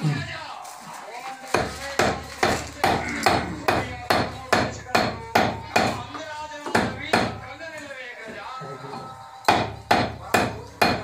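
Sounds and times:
hammer pounding leather: 1.5s - 6.0s, 6.7s - 7.4s, 9.5s - 11.0s.

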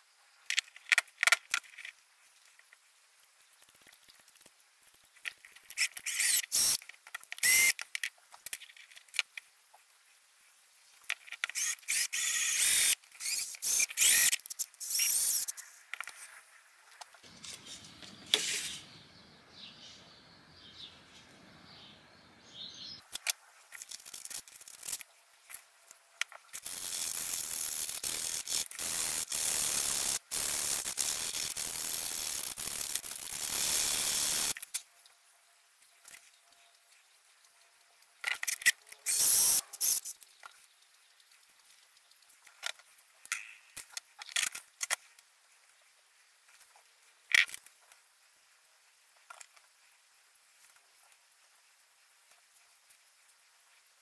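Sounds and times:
knife blade scraping wood: 17.3s - 18.9s.

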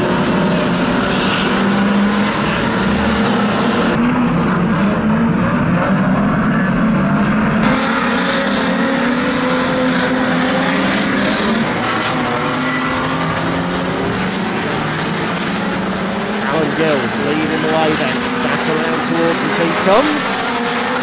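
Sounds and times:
racing car engines droning: 0.0s - 21.0s.

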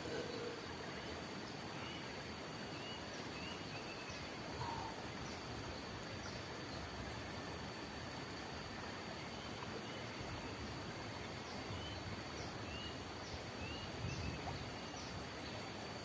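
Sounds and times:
faint bird chirps: 0.0s - 5.5s
background hiss: 0.0s - 16.0s.

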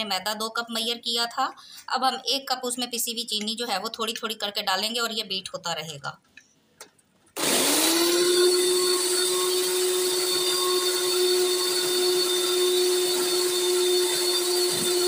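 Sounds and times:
electric hand mixer whirring: 7.4s - 15.0s.

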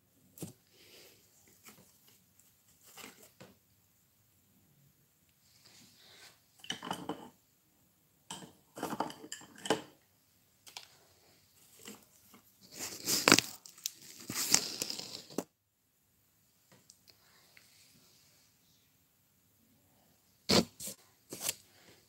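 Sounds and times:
rustling of small objects: 10.6s - 15.5s, 20.5s - 22.0s.

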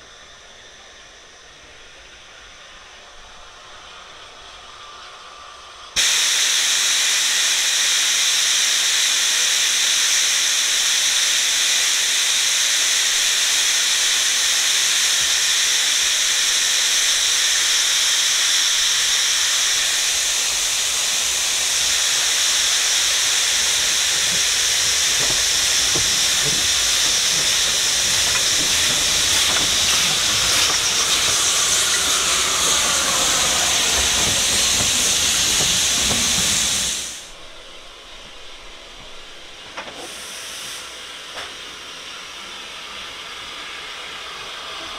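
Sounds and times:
steam locomotive hissing: 0.0s - 44.9s
train wheels rumbling and clicking: 11.2s - 40.7s.

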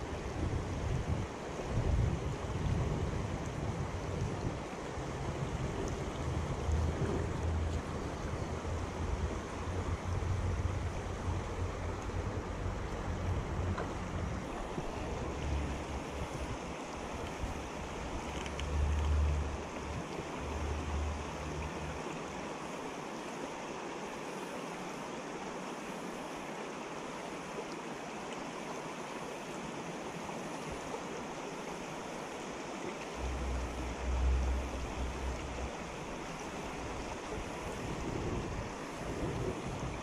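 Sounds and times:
wind rumble on microphone: 0.0s - 22.2s, 33.2s - 40.0s
creek water running over rocks: 0.0s - 40.0s.

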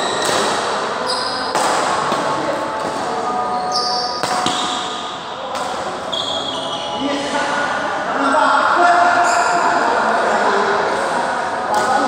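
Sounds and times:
rackets hitting shuttlecock: 0.0s - 0.9s, 1.5s - 3.1s, 4.2s - 5.9s
shoes squeaking on court: 1.0s - 1.6s, 3.5s - 4.8s, 6.1s - 7.1s.

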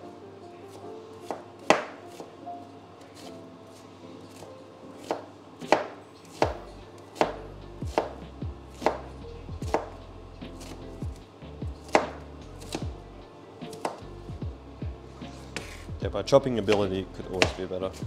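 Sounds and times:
knife chopping on cutting board: 0.7s - 2.3s, 3.1s - 13.0s, 13.7s - 14.1s, 15.2s - 16.0s, 16.6s - 18.0s.

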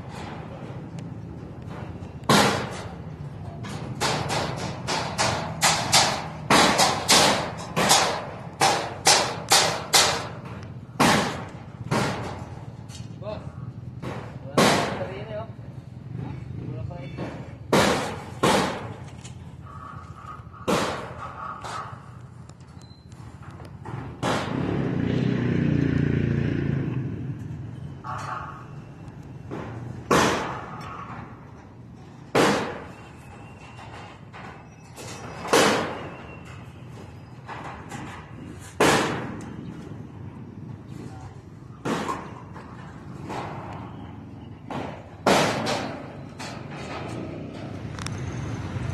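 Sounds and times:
loud bangs: 1.6s - 3.0s, 3.7s - 12.7s, 13.9s - 15.4s, 17.2s - 19.1s, 20.6s - 21.9s, 23.8s - 25.1s, 29.4s - 31.6s, 32.3s - 36.7s, 37.4s - 40.2s, 41.8s - 47.7s
knocks and thuds on steel: 1.7s - 2.9s, 3.7s - 12.5s, 14.0s - 15.1s, 17.2s - 19.0s, 20.6s - 21.8s, 23.8s - 24.6s, 29.5s - 31.3s, 32.3s - 33.0s, 33.9s - 36.1s, 37.4s - 39.4s, 41.8s - 43.7s, 44.7s - 47.1s.

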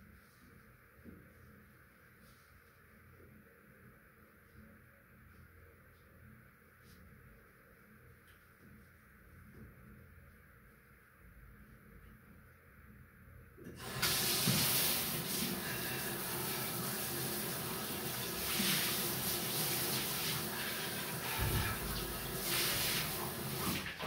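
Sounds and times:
water running from bathtub tap: 13.7s - 24.0s.

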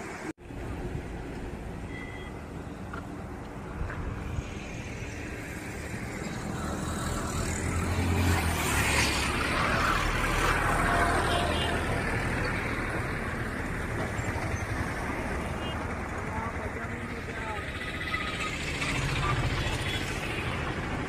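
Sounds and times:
road traffic: 0.0s - 21.0s
vehicle engine rumble: 0.0s - 21.0s.

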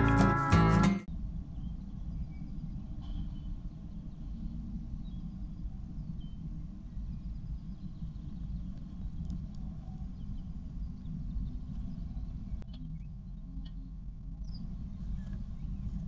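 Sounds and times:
low rumbling background noise: 1.1s - 16.0s
faint bird chirps: 1.5s - 8.8s.

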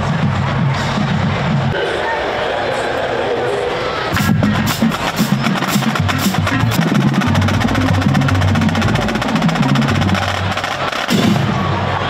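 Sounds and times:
fast drum strokes and rolls: 0.0s - 1.8s, 4.1s - 12.0s.

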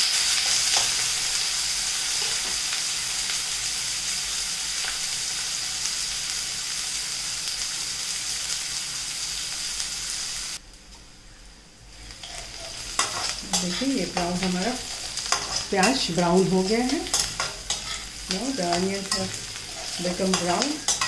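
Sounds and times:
onions sizzling in hot oil: 0.0s - 10.7s, 11.8s - 21.0s
spatula scraping pan: 12.1s - 21.0s.

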